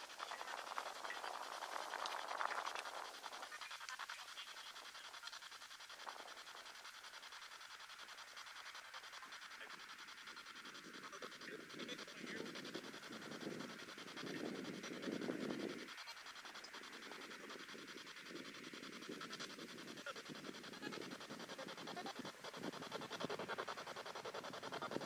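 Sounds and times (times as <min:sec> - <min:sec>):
choppy radio static hiss: 0:00.0 - 0:25.0
fast even clicking: 0:11.1 - 0:25.0.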